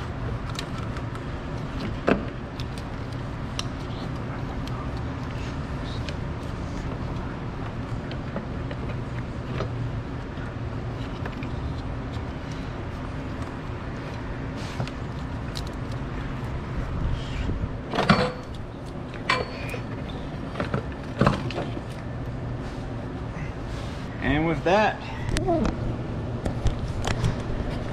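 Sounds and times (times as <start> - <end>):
steady low hum: 0.0 - 27.9
metal clunks and rattles: 17.9 - 18.6.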